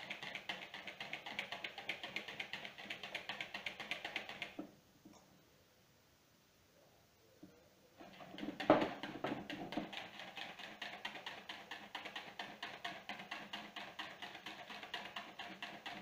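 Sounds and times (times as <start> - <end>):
whisk clicking against bowl: 0.0 - 4.6, 8.0 - 16.0.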